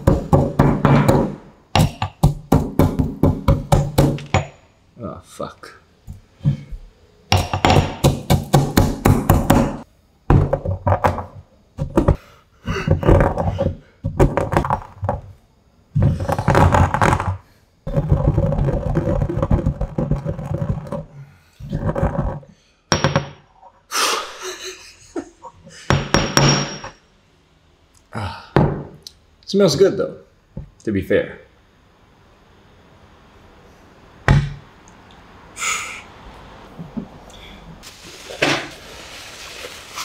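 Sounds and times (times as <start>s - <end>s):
pestle crushing coffee beans: 0.0s - 4.5s, 7.3s - 15.2s, 15.9s - 22.4s.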